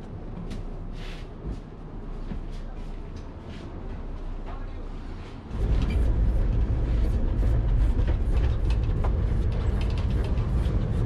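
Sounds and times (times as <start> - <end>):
tram rumbling on rails: 0.0 - 11.0
rattling and clatter: 5.5 - 11.0.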